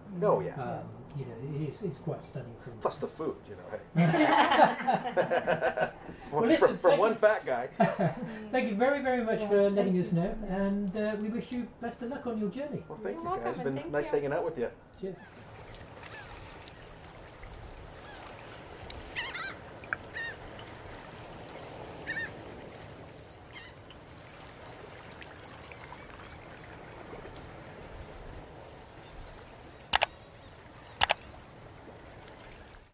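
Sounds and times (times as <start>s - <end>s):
birds calling: 15.1s - 24.0s, 28.4s - 32.1s
sharp clicks: 29.9s - 30.2s, 31.0s - 31.3s.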